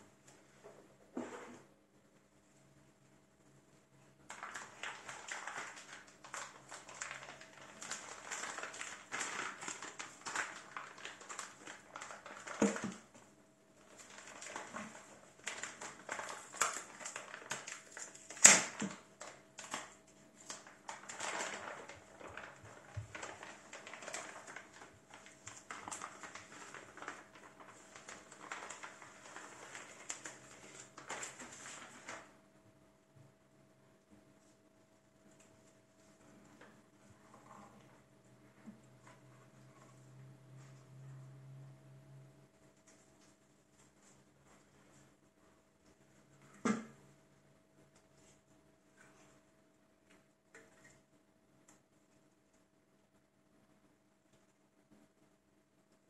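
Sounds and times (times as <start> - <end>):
plastic bag crinkling: 4.3 - 13.2, 13.8 - 32.3.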